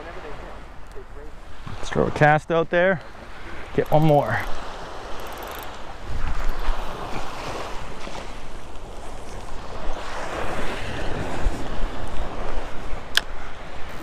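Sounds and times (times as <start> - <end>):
surf washing up beach: 0.0 - 14.0
wind buffeting microphone: 3.1 - 14.0.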